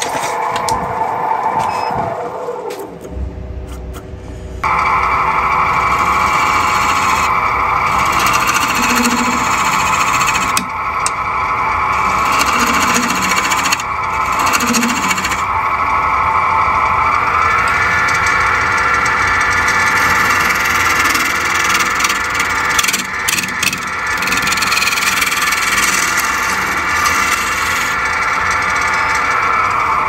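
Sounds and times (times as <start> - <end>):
wood lathe tool cutting: 4.6 - 15.9, 17.4 - 30.0.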